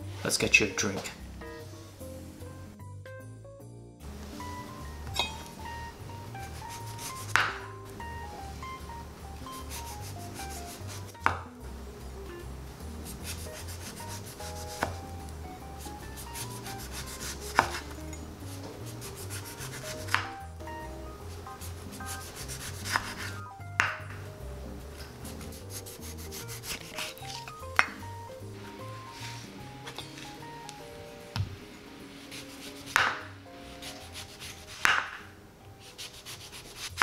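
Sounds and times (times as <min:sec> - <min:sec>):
knife rasping through lime: 0:06.4 - 0:07.3, 0:09.6 - 0:11.2, 0:13.1 - 0:15.0, 0:15.8 - 0:20.3, 0:21.6 - 0:23.4, 0:25.3 - 0:27.6, 0:32.2 - 0:33.1, 0:33.8 - 0:34.9, 0:35.8 - 0:37.0.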